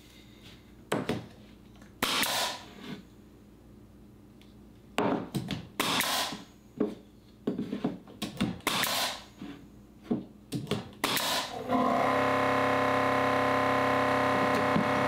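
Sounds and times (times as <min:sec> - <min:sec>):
pneumatic nailer shots: 0:02.0 - 0:02.7, 0:05.8 - 0:06.5, 0:08.6 - 0:09.3, 0:11.0 - 0:15.0.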